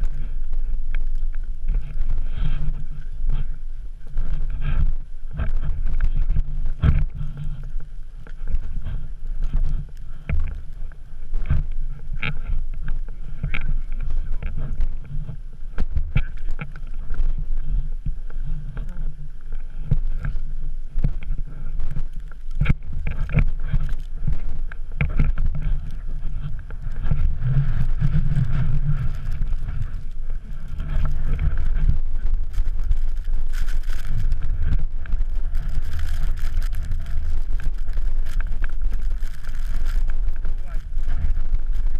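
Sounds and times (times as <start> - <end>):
wind buffeting microphone: 0.0 - 41.9
footsteps crunching in snow: 25.3 - 41.9.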